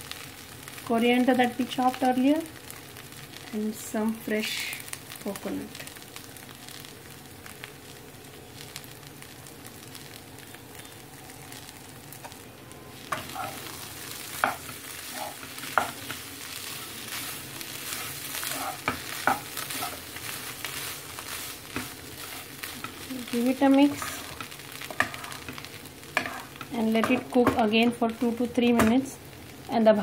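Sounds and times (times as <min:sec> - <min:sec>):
food sizzling in a pan: 0:00.0 - 0:30.0
spatula scraping a pan: 0:13.0 - 0:27.2.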